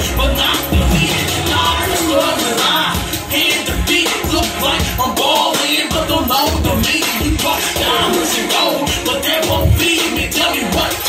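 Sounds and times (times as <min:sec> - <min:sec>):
deep bass: 0:00.0 - 0:05.2
hip hop backing track: 0:00.0 - 0:11.0
sliding vocal line: 0:00.0 - 0:11.0.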